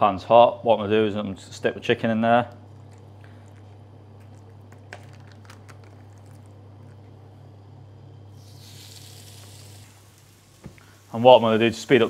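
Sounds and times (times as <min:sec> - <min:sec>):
low steady hum: 0:00.0 - 0:12.0
chicken sizzling on grill pan: 0:08.3 - 0:12.0.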